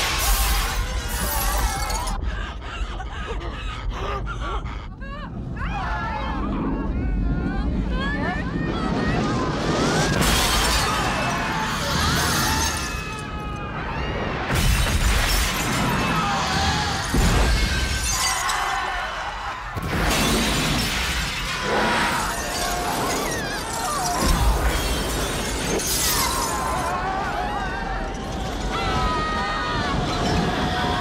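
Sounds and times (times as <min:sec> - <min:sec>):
people screaming: 0:00.0 - 0:31.0
low rumble: 0:04.4 - 0:11.0
glass breaking: 0:10.2 - 0:11.5, 0:14.5 - 0:16.3, 0:17.0 - 0:18.8, 0:19.8 - 0:26.9.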